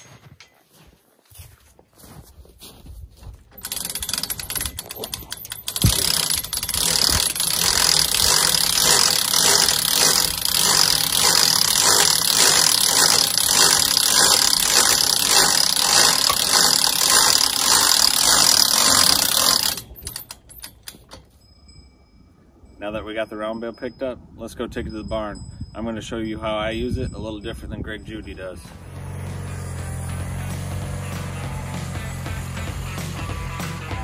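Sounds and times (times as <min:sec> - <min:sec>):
winch ratchet clicking rapidly: 0:03.5 - 0:21.3.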